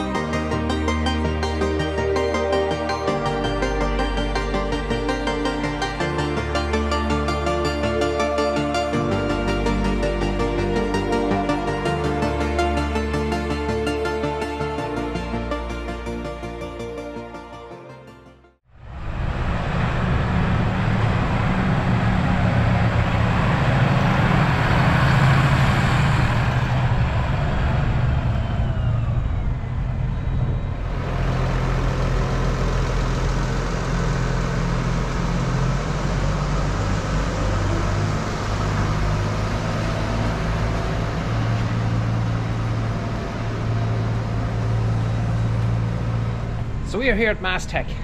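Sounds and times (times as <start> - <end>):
tractor diesel engine running: 18.7 - 48.0
brief falling whine: 18.8 - 46.9.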